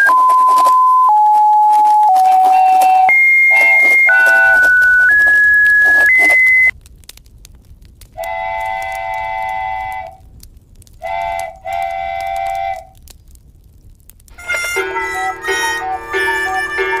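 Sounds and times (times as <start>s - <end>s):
horn chord blasts: 14.4s - 17.0s.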